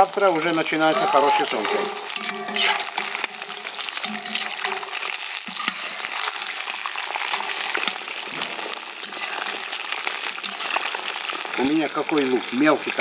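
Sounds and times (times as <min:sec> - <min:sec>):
birds sizzling in hot oil: 0:00.0 - 0:13.0
metal skimmer scraping pot: 0:00.8 - 0:06.3, 0:07.2 - 0:11.0.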